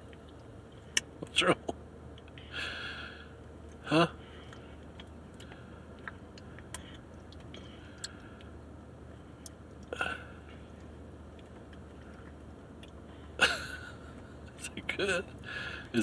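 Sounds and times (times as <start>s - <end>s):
car interior hum: 0.0s - 16.0s
child chewing: 3.7s - 8.6s.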